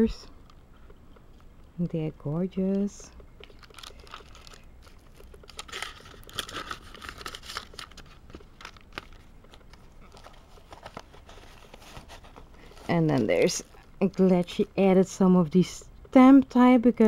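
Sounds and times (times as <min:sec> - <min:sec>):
tissue paper and plastic rustling: 0:03.4 - 0:14.6.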